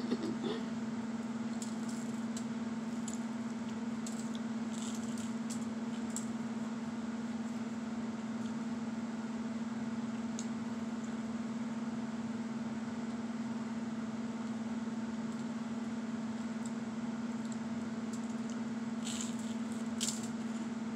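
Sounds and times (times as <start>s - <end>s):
low electrical hum: 0.0s - 20.9s
toast crunching while chewed: 1.4s - 6.3s, 18.2s - 20.6s.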